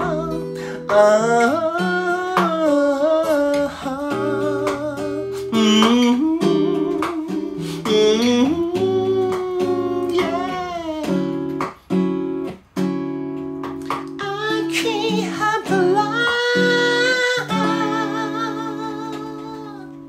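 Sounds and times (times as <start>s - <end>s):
acoustic guitar: 0.0s - 20.0s
person singing long sliding notes: 14.2s - 20.0s.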